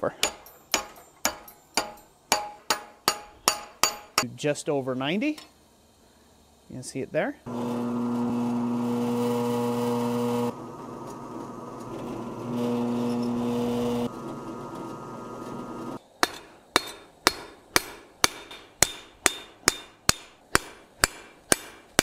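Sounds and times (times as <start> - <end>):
hammer striking on anvil: 0.0 - 4.2, 16.2 - 22.0
drill press motor humming: 7.5 - 16.0.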